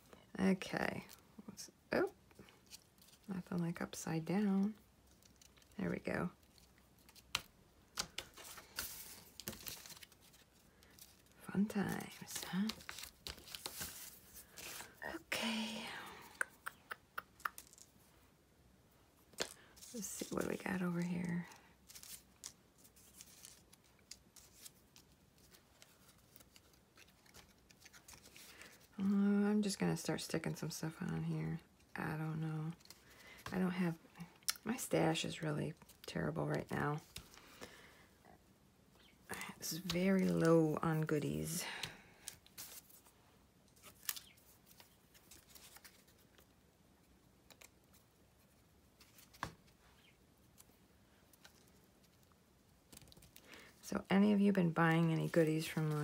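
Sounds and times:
paper rustling and ticking: 0:06.4 - 0:15.0, 0:17.2 - 0:17.9, 0:19.3 - 0:28.9.

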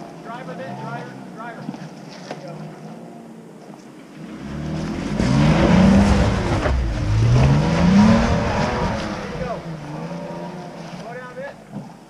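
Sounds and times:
engine revving: 0:04.2 - 0:11.9.

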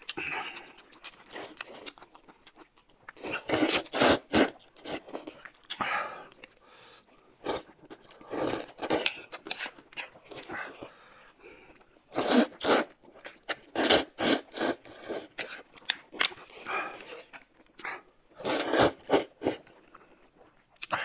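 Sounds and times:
chewing: 0:00.0 - 0:21.0
noodles slurped: 0:11.7 - 0:21.0.

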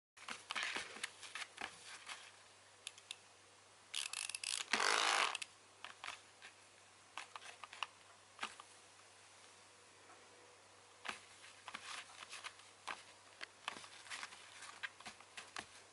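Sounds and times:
wind-up toy ticking and whirring: 0:04.0 - 0:05.4.

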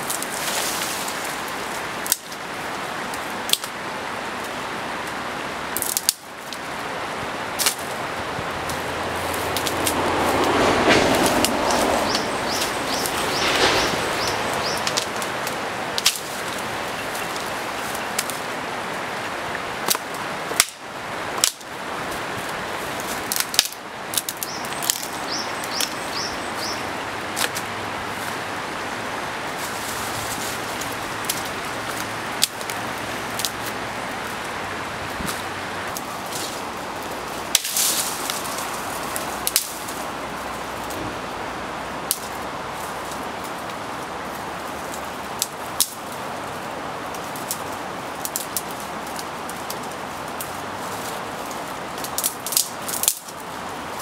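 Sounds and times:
branches snapping and cracking: 0:00.0 - 0:03.8, 0:04.4 - 0:28.5, 0:29.2 - 0:41.2, 0:42.0 - 0:54.0
leaves rustling: 0:00.0 - 0:54.0
steady rushing background: 0:07.8 - 0:17.6
small birds chirping: 0:11.7 - 0:15.2, 0:24.2 - 0:27.2.

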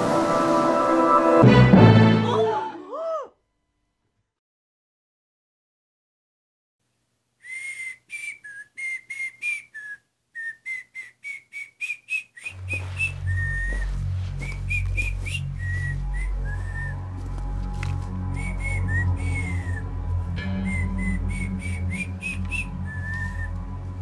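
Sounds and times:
low heavy music: 0:00.0 - 0:02.7, 0:12.6 - 0:24.0
person whistling a tune: 0:07.4 - 0:17.1, 0:18.1 - 0:23.8.

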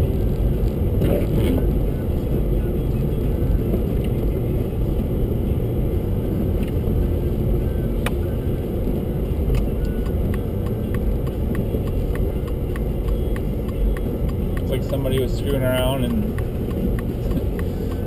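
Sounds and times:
car cabin road and engine noise: 0:00.0 - 0:18.0
light ticking: 0:09.5 - 0:18.0.

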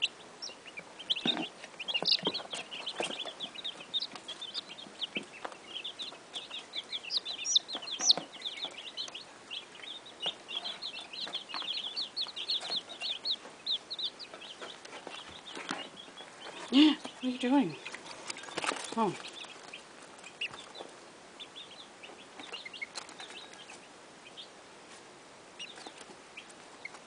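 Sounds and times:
chicks peeping: 0:00.0 - 0:27.0.

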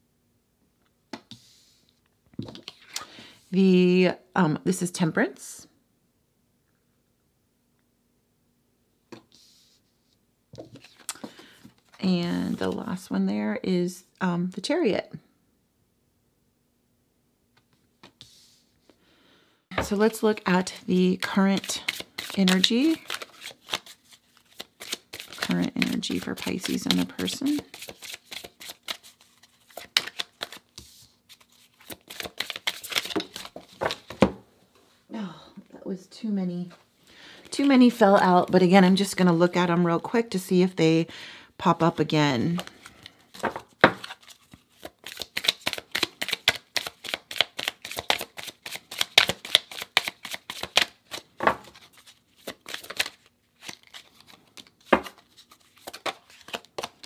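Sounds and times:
cards being shuffled: 0:10.6 - 0:13.0, 0:19.8 - 0:34.3, 0:42.4 - 0:57.0.

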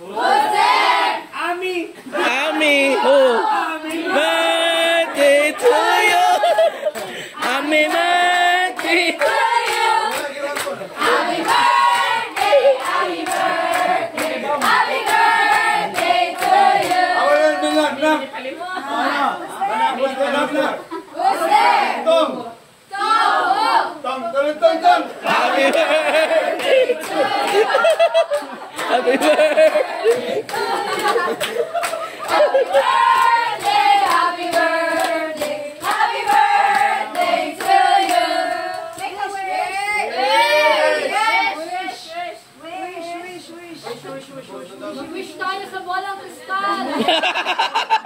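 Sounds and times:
group of people singing: 0:00.0 - 0:01.4, 0:02.1 - 0:18.3, 0:20.5 - 0:24.0, 0:25.0 - 0:42.5
hand claps: 0:08.8 - 0:10.8, 0:25.6 - 0:38.2.

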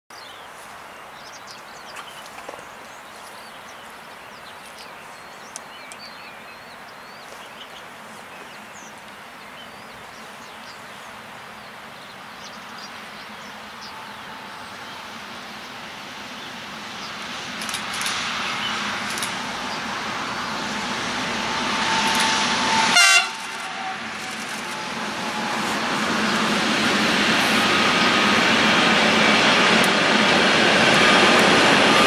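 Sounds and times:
small birds chirping: 0:00.2 - 0:15.8
freight train rumble: 0:00.2 - 0:32.0
faint train whine: 0:00.4 - 0:32.0.

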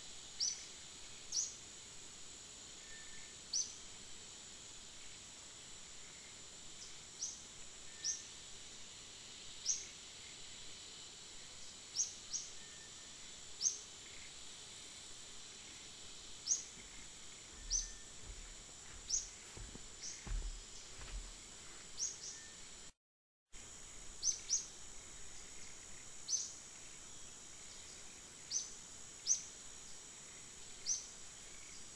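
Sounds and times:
high insect drone: 0:00.0 - 0:23.0, 0:23.6 - 0:31.9
bird chirping: 0:16.4 - 0:19.4
low thumps: 0:17.6 - 0:21.4.

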